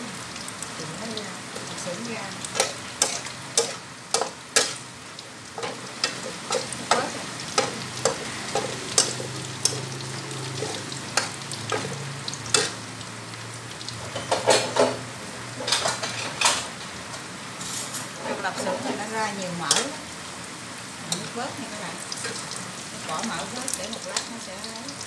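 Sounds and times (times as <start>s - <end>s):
food sizzling in a wok: 0.0s - 25.0s
metal spatula clinking and scraping: 2.5s - 4.8s, 5.6s - 9.9s, 10.6s - 12.8s.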